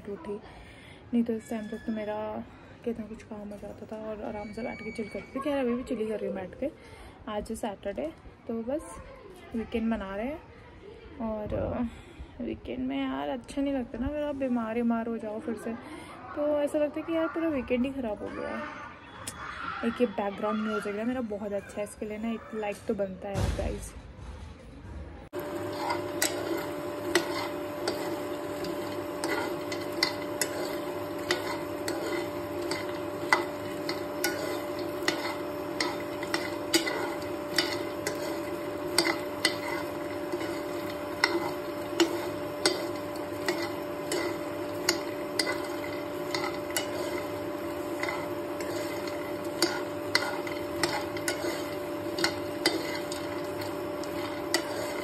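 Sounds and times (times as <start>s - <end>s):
spoon clacking against pan: 25.4s - 55.0s
spoon stirring nuts in pan: 25.4s - 55.0s
steady hum: 25.4s - 55.0s.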